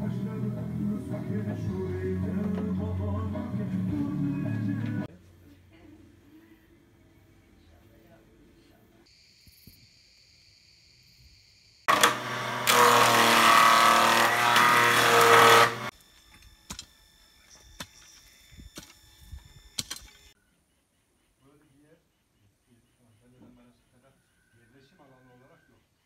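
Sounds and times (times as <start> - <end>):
woodworking machine cutting wood: 11.9 - 15.9
machine hum: 11.9 - 20.4.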